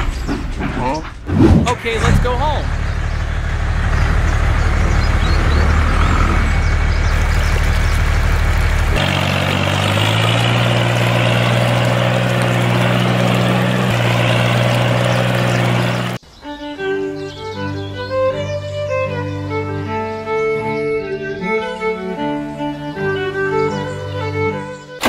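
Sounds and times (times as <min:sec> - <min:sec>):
vehicle engine running: 0:01.3 - 0:16.2.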